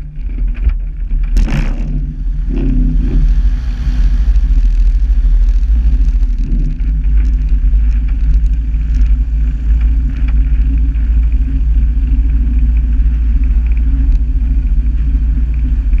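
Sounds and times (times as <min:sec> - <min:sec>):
light aircraft engine droning: 0:00.0 - 0:16.0
wind rumble on microphone: 0:00.0 - 0:16.0.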